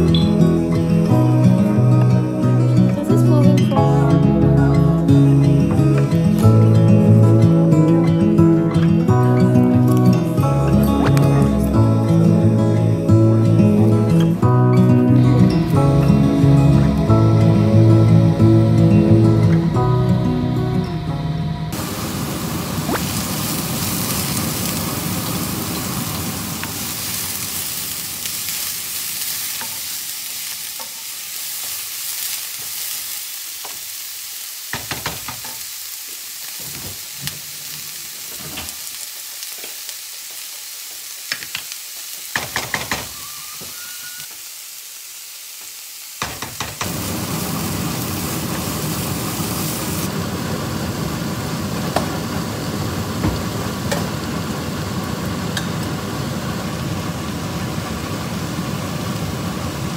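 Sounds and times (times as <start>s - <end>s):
vegetables sizzling in a wok: 0.0s - 20.6s, 21.7s - 59.9s.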